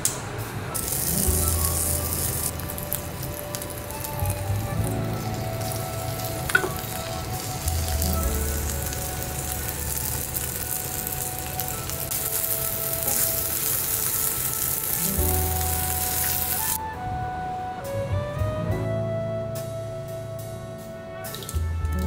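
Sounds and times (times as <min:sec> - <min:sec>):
soft background music: 0:00.7 - 0:22.0
food sizzling in a skillet: 0:00.8 - 0:16.8.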